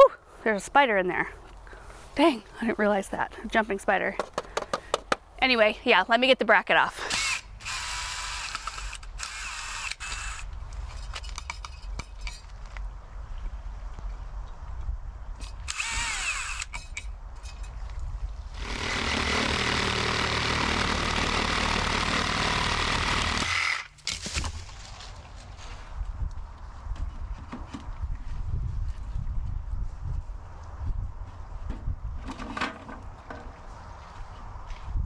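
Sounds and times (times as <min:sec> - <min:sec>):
cordless drill whirring: 0:07.1 - 0:10.5, 0:15.6 - 0:16.8, 0:18.6 - 0:23.9
reciprocating saw cutting wood: 0:07.1 - 0:10.5, 0:15.6 - 0:16.9, 0:18.6 - 0:24.0.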